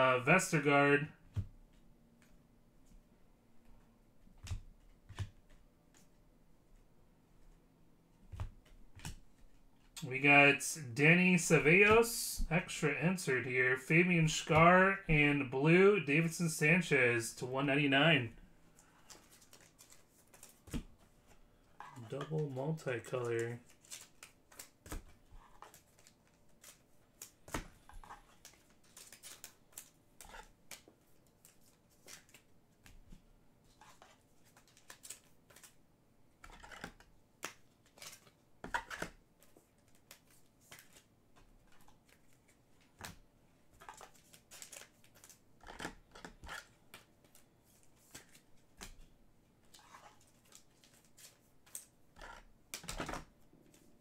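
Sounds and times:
trading cards being flipped: 19.0s - 21.4s, 33.8s - 35.8s, 36.5s - 41.1s, 43.8s - 49.0s.

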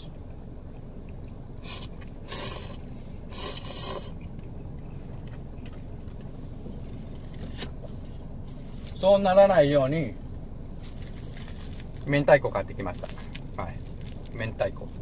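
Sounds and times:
steady low hum: 0.0s - 15.0s
man slurping noodles: 1.6s - 4.2s.

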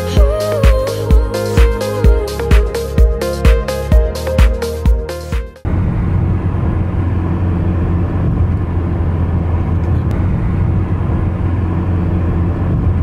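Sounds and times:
vehicle cabin drone: 5.6s - 13.0s.

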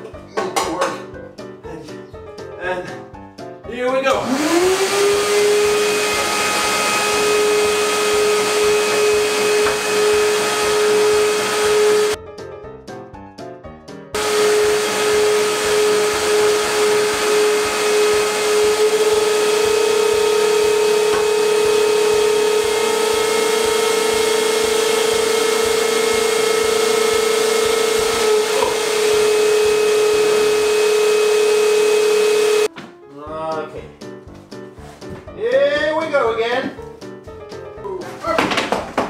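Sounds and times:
vacuum cleaners running: 4.1s - 12.2s, 14.2s - 32.7s.

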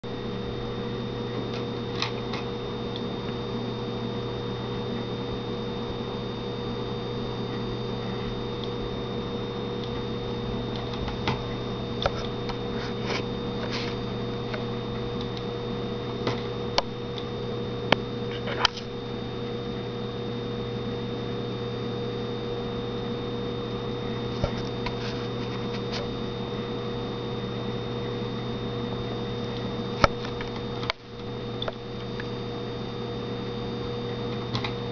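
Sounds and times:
electrical hum with tones: 0.0s - 34.9s.

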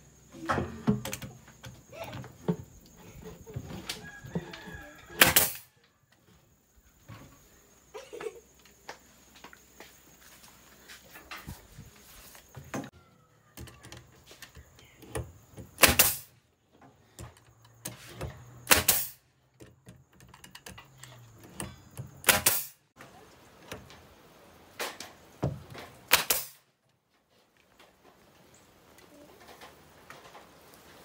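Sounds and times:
nail gun shots: 5.2s - 5.7s, 15.8s - 16.3s, 18.6s - 19.2s, 22.2s - 22.8s, 26.1s - 26.6s.

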